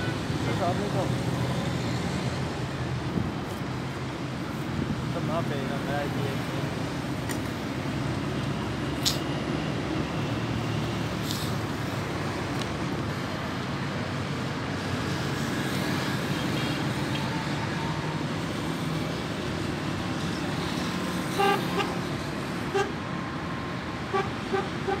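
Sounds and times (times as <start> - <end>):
road traffic: 0.0 - 25.0
vehicle horn toots: 24.1 - 25.0.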